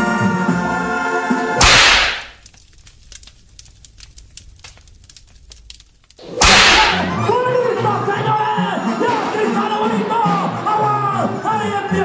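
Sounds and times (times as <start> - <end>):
sparse crackling: 1.6 - 7.3.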